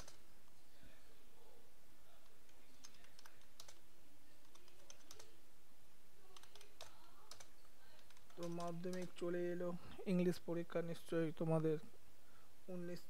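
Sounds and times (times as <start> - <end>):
keyboard keys clicking: 4.4 - 5.3, 6.4 - 9.2.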